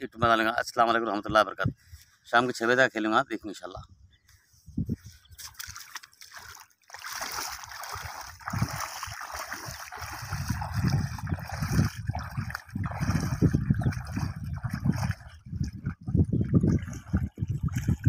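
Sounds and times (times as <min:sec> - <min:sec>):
water sloshing and splashing: 0:05.3 - 0:18.0.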